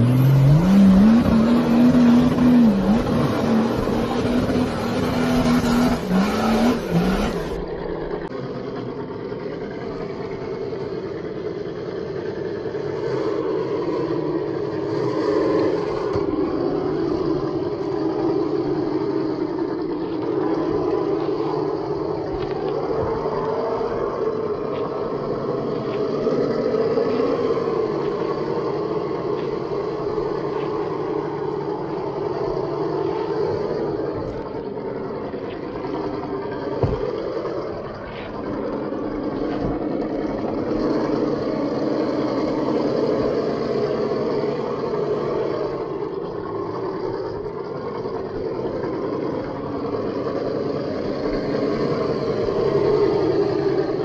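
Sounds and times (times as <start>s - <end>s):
rc car motor whine: 0.0s - 54.0s
revving engine sound effect: 0.0s - 54.0s.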